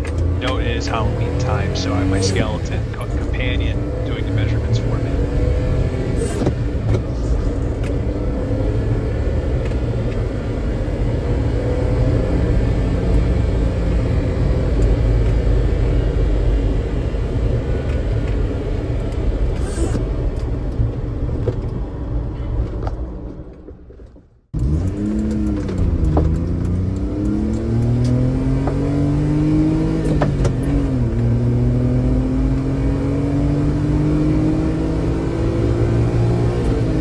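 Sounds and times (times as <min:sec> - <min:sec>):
small truck engine drone: 0:00.0 - 0:37.0.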